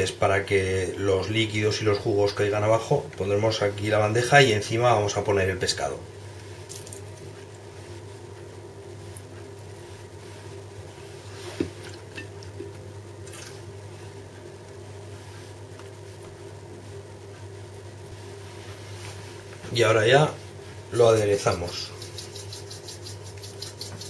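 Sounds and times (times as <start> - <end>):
steady low hum: 0.0 - 24.0
soft wet squishes: 6.3 - 16.5.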